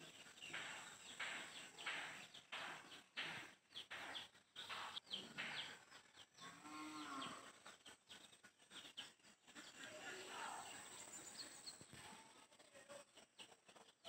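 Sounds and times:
cow mooing: 6.4s - 7.5s.

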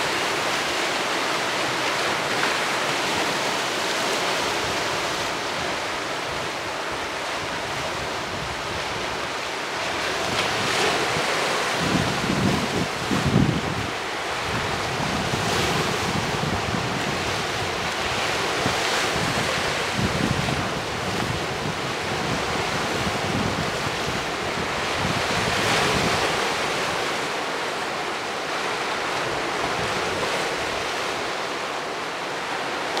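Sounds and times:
surf washing over boulders: 0.0s - 33.0s.

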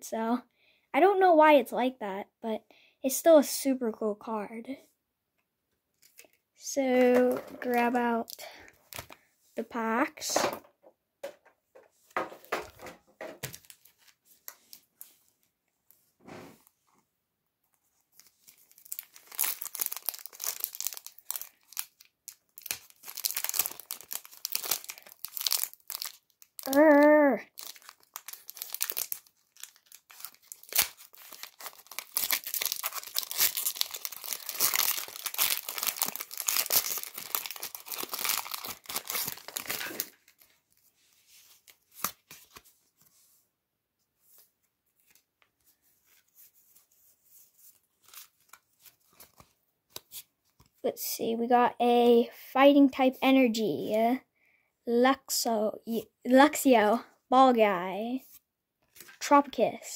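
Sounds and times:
foil wrapper crinkling and tearing: 13.4s - 15.2s, 18.1s - 40.8s, 47.7s - 50.3s.

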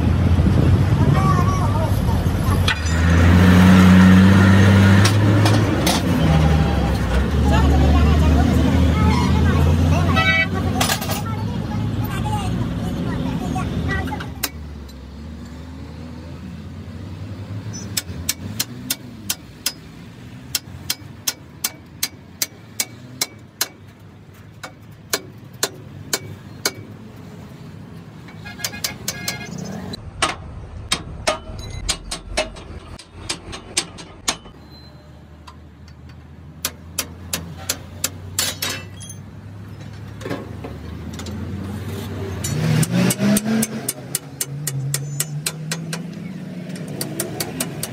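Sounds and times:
metallic taps on steel: 17.8s - 19.9s, 20.5s - 26.9s, 30.2s - 34.6s, 35.4s - 39.2s, 42.4s - 47.9s.

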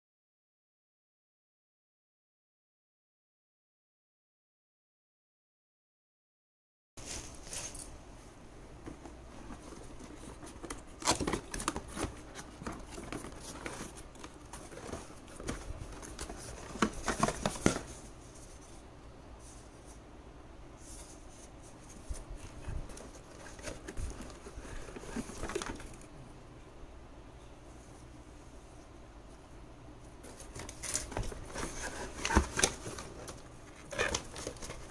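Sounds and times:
cardboard box being opened: 9.4s - 18.0s, 22.4s - 26.0s, 30.3s - 34.9s
plastic wrapping crinkling: 9.4s - 18.0s, 30.3s - 34.9s.

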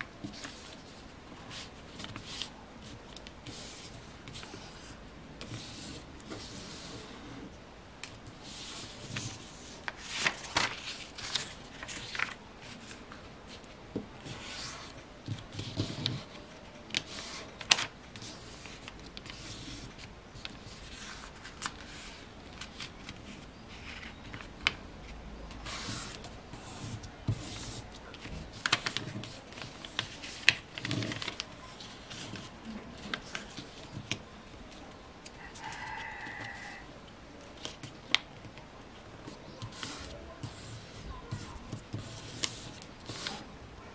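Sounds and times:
paper rustling and crinkling: 0.0s - 7.1s, 8.3s - 36.8s, 37.4s - 43.9s
paper folds crackling: 8.5s - 24.8s, 25.6s - 36.8s.

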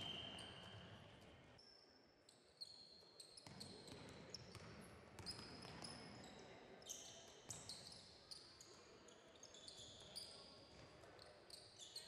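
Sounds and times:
sneaker squeaks: 0.0s - 1.2s.

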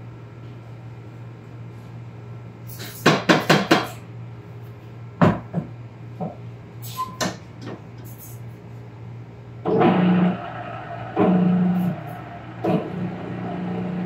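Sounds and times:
steady low hum: 7.4s - 14.0s.

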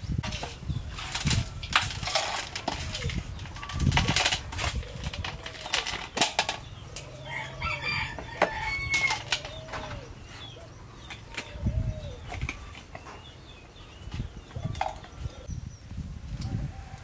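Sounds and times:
plastic jars and lids clicking: 0.2s - 7.2s, 8.2s - 10.0s
chickens clucking: 0.2s - 15.5s
rooster crowing: 7.2s - 10.0s.

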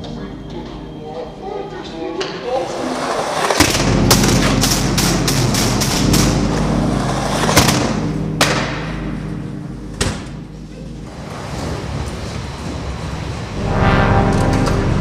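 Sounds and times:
skateboard wheels rolling: 2.2s - 8.6s, 10.9s - 13.6s.

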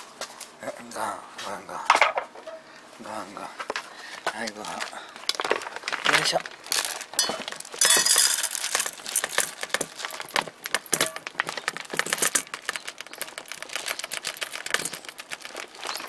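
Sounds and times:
kibble pouring into metal bowl: 6.2s - 16.0s.

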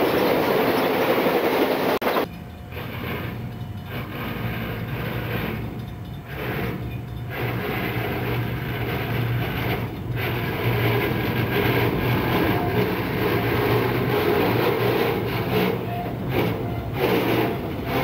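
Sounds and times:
freight train rumbling past: 0.0s - 18.0s.

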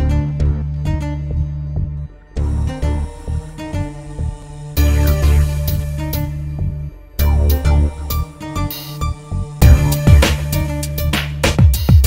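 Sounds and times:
instrumental music with heavy beat: 4.8s - 12.0s.

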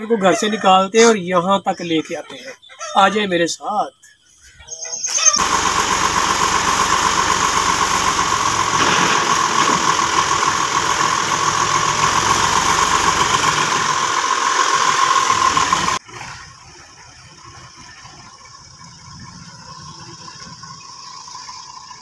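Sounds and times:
tractor diesel engine idling: 5.4s - 22.0s.

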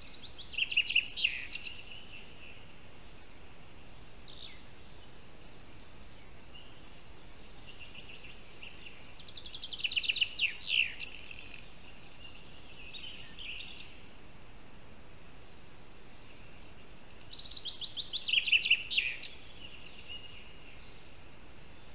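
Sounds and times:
songbird trilling: 0.0s - 2.7s, 6.2s - 14.0s, 16.3s - 21.7s
soft bird chirps: 0.0s - 5.2s, 5.8s - 14.2s, 16.0s - 21.9s.

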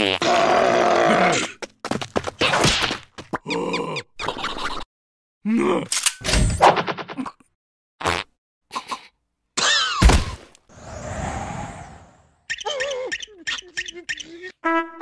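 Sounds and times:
breathy whoosh: 10.7s - 12.4s.

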